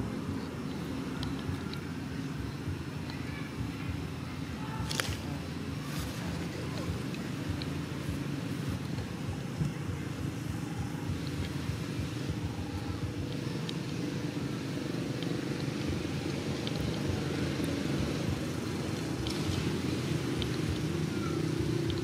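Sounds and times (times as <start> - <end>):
motor vehicle rumble: 0.0 - 22.0
faint clicks: 0.3 - 1.9.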